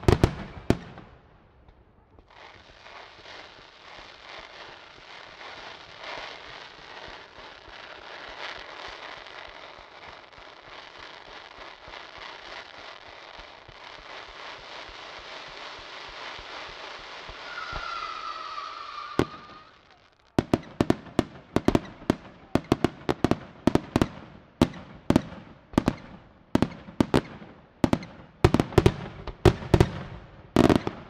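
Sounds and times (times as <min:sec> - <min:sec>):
fireworks hissing and crackling: 0:00.0 - 0:31.0.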